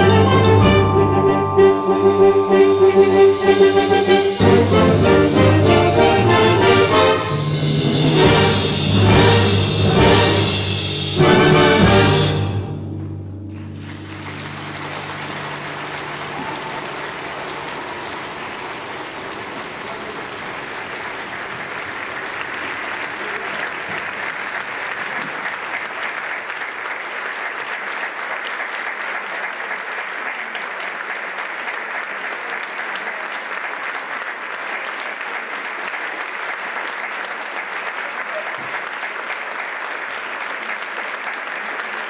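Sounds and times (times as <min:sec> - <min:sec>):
audience applauding: 0:13.5 - 0:42.0.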